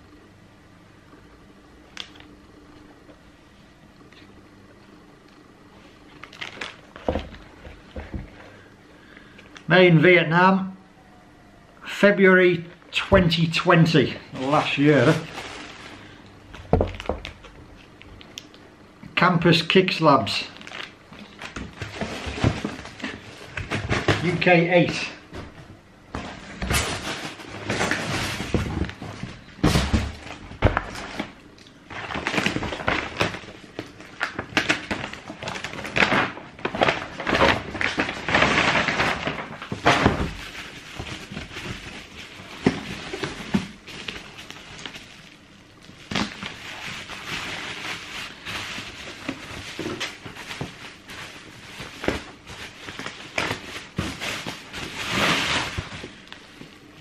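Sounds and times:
bubble wrap crinkling: 0:05.8 - 0:09.7, 0:12.6 - 0:18.6, 0:20.2 - 0:24.6, 0:26.2 - 0:57.0
plastic and paper wrapping rustling: 0:05.8 - 0:09.7, 0:12.6 - 0:18.5, 0:19.5 - 0:57.0.

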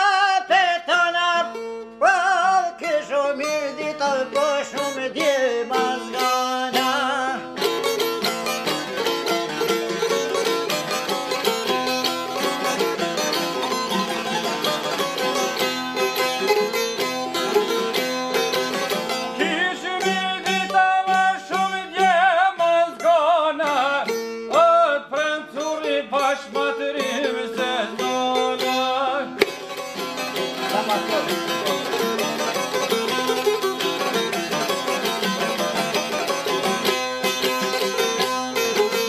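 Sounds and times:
man singing: 0:00.0 - 0:07.7, 0:19.4 - 0:29.4
lutes playing fast: 0:03.2 - 0:22.1, 0:26.6 - 0:39.0.

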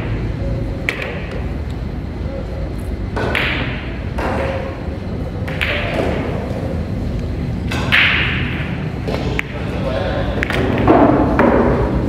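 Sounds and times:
pool hall hum: 0:00.0 - 0:12.0
pool balls knocking: 0:03.1 - 0:04.8, 0:07.7 - 0:09.6, 0:10.3 - 0:12.0.

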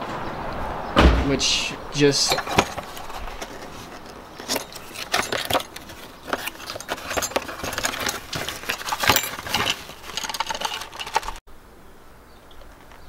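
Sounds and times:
cardboard box scraping and crinkling: 0:02.4 - 0:11.4.

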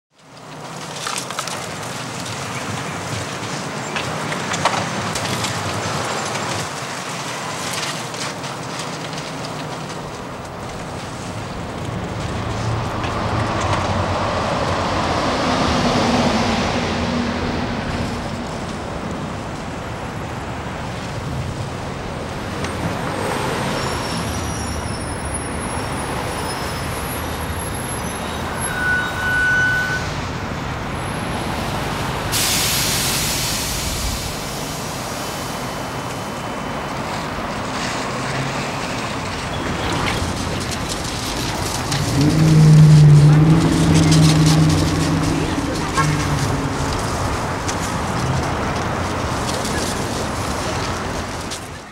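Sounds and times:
truck and bus engines: 0:00.1 - 0:51.9
passing vehicles: 0:00.2 - 0:51.9
air brake hiss: 0:32.3 - 0:35.7.

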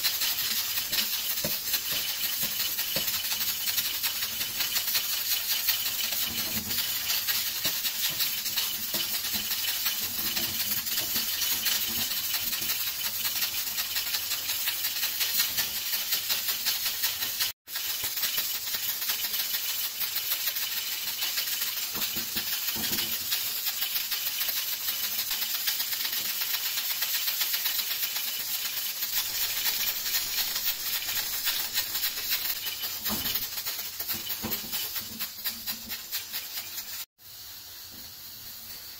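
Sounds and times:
hot griddle hissing and crackling: 0:00.0 - 0:38.9.

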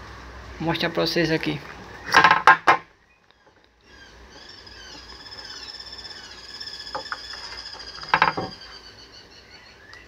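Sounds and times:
small birds chirping: 0:02.9 - 0:10.0.

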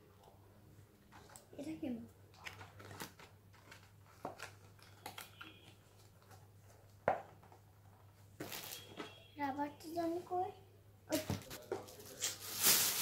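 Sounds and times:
plastic packet crinkling: 0:11.4 - 0:13.0.

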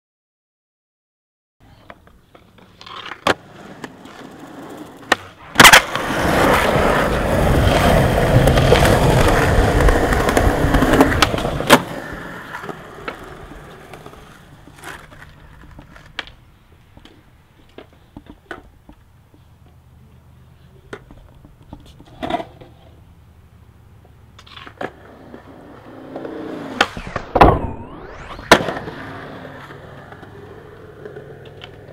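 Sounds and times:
skateboard wheels rolling on concrete: 0:01.6 - 0:31.9
skateboard clacks: 0:01.7 - 0:19.8, 0:28.5 - 0:31.9
skateboard scraping: 0:01.7 - 0:19.8, 0:20.5 - 0:23.2, 0:24.1 - 0:31.9.

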